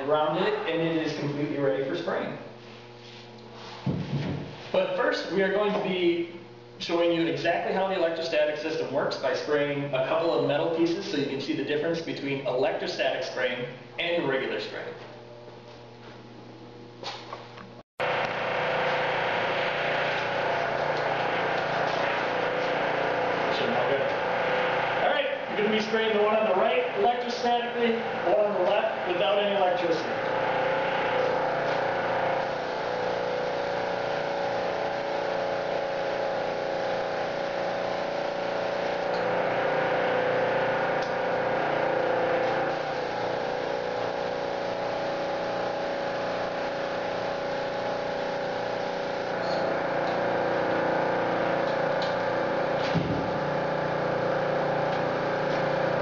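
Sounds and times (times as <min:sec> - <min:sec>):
motor hum: 0:00.0 - 0:56.0
air and paint spray hiss: 0:32.4 - 0:38.9.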